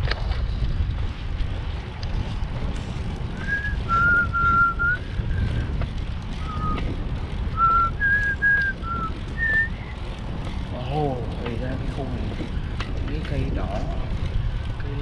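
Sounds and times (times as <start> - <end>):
wind rumble on microphone: 0.0 - 15.0
person whistling a tune: 3.4 - 5.5, 7.6 - 9.7.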